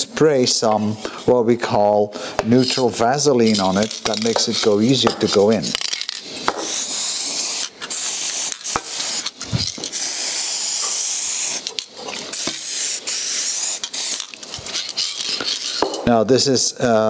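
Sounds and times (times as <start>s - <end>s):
aerosol spray hissing: 6.2s - 16.0s.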